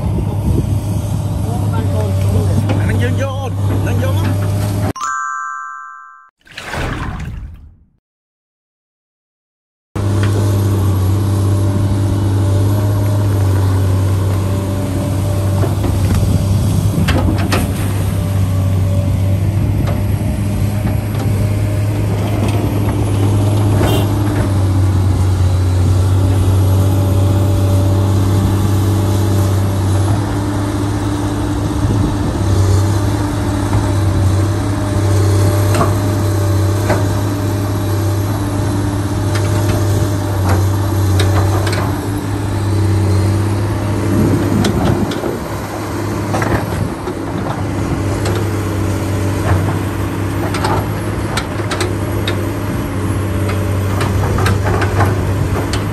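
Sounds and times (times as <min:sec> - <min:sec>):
engine running steadily: 0:10.0 - 0:55.9.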